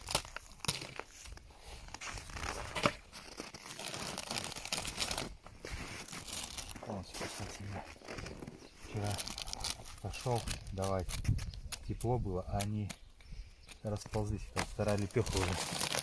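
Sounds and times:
plastic crinkling and rustling: 0.0s - 13.0s, 13.8s - 16.0s.

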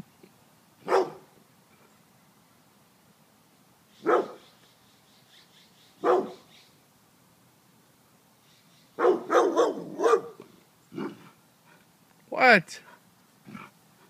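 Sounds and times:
dog barking: 0.8s - 1.2s, 4.0s - 4.4s, 6.0s - 6.5s, 9.0s - 10.4s.

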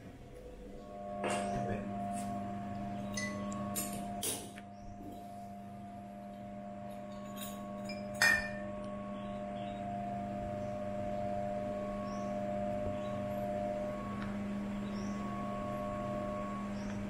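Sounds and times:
steady hum: 0.0s - 17.0s
glass bottles clinking: 7.3s - 8.6s.

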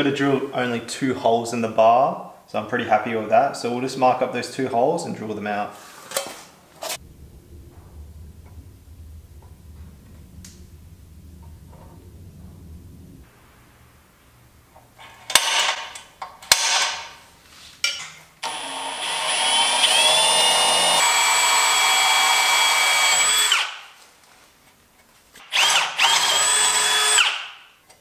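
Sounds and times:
cordless drill drilling metal: 18.4s - 23.8s, 25.4s - 27.6s.

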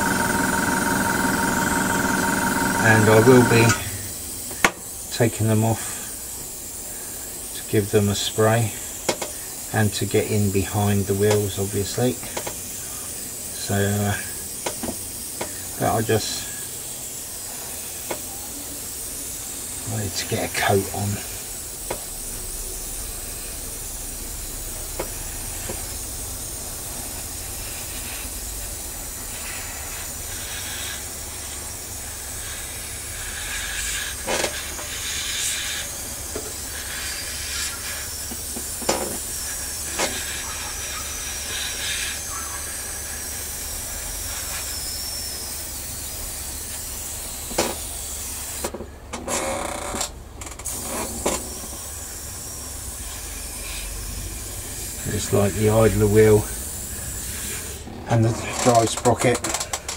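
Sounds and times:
airbrush hissing: 0.0s - 48.8s, 50.6s - 59.9s.

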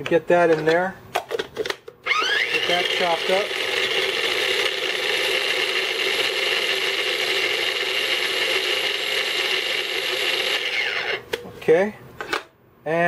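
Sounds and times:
electric food chopper running: 2.0s - 11.3s
motor winding down whine: 2.0s - 11.3s.

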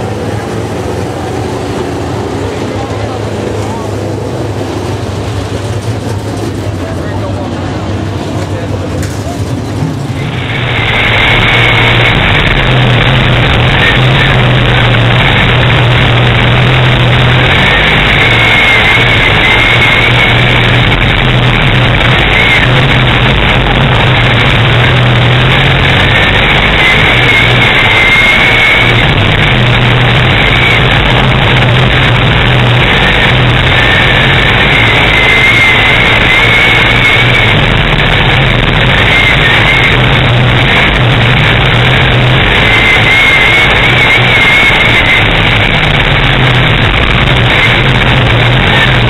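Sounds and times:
race car engine running hard: 0.0s - 49.0s.

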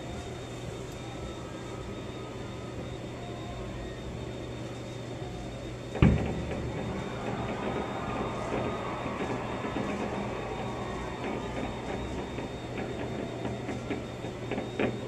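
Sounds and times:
low hum: 5.9s - 15.0s
muffled firework boom: 6.0s - 7.0s.

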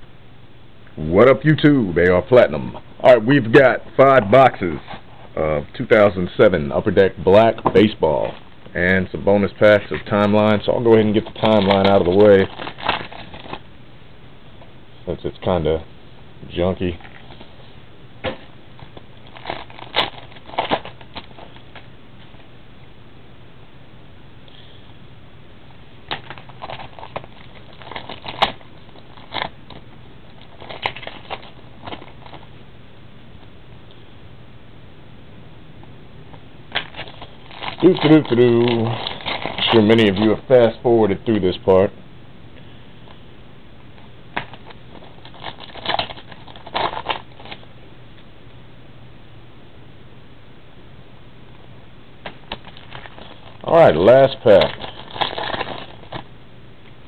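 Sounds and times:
foil wrapper crinkling and tearing: 9.8s - 13.7s, 18.8s - 21.8s, 26.1s - 32.5s, 36.7s - 40.8s, 44.4s - 47.6s, 52.4s - 56.3s
trading cards rustling and snapping: 10.0s - 13.6s, 18.2s - 21.9s, 26.1s - 32.5s, 36.7s - 40.4s, 44.4s - 47.6s, 52.2s - 56.3s.

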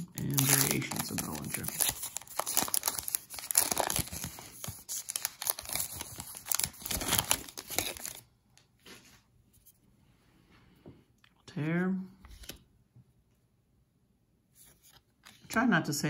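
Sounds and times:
wrapper tearing and crinkling: 0.0s - 8.2s.

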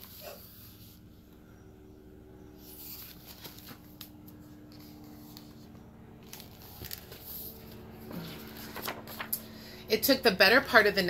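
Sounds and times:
paper rustling: 2.6s - 9.4s.

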